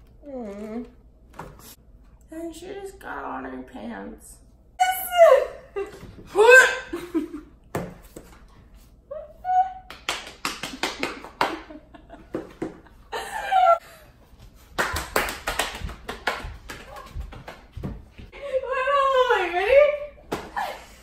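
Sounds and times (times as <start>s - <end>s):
hand claps: 9.9s - 12.8s, 14.7s - 17.8s.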